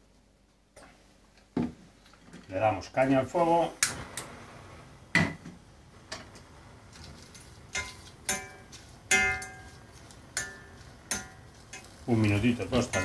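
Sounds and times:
wooden spatula stirring in saucepan: 0:06.2 - 0:13.0
metal pan ringing when knocked: 0:07.8 - 0:09.6.

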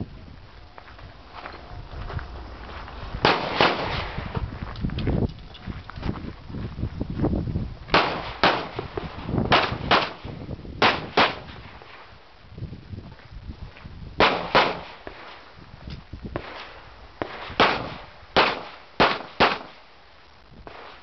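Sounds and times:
handgun shots: 0:03.2 - 0:04.0, 0:07.9 - 0:08.8, 0:09.5 - 0:10.2, 0:14.2 - 0:14.9, 0:17.6 - 0:19.8.

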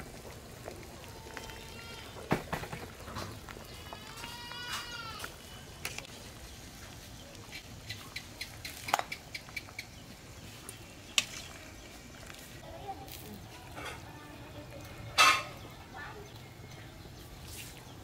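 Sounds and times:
metal ladle clinking on pot: 0:15.2 - 0:15.6.

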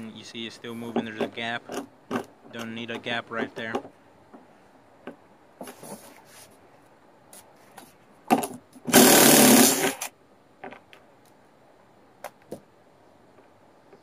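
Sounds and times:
power drill driving screw: 0:08.9 - 0:10.1.

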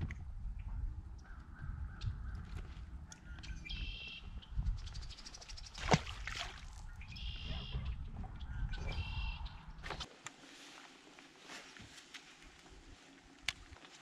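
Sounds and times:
splash in water: 0:05.7 - 0:06.8.

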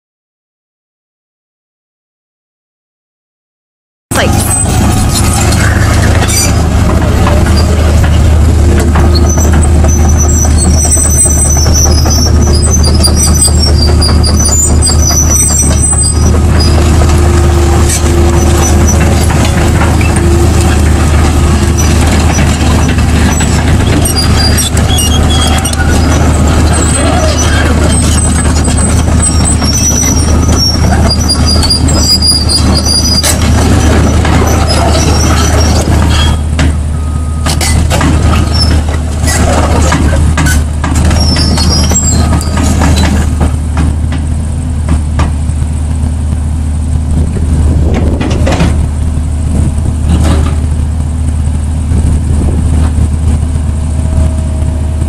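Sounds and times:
high-pitched track squeaks: 0:04.1 - 0:43.5
diesel excavator engine rumble: 0:04.1 - 0:55.0.

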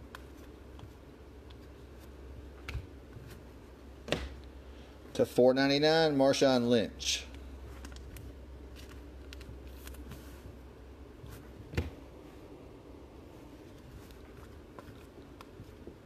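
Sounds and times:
low room hum: 0:00.0 - 0:16.0
trading cards sliding and clicking: 0:07.7 - 0:10.6.

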